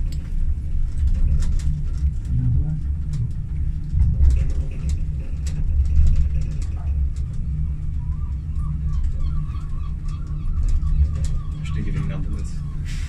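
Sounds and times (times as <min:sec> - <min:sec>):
small clicks and rattles: 0:00.0 - 0:12.8
funicular cabin rumble: 0:00.0 - 0:13.0.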